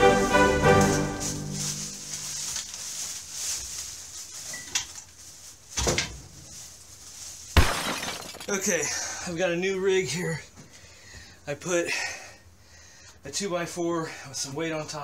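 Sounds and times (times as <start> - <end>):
plastic bag rustling: 0.6 - 8.7.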